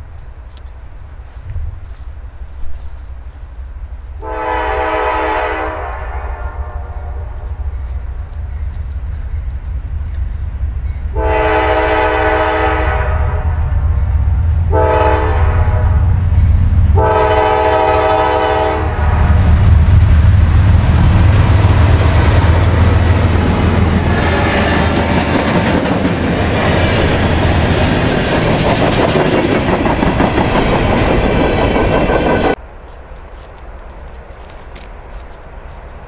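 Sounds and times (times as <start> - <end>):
locomotive horn: 4.2 - 8.0, 11.1 - 14.0, 14.7 - 16.2, 16.9 - 19.4
locomotive engine running: 15.6 - 32.6
freight cars rolling on rails: 19.0 - 32.6.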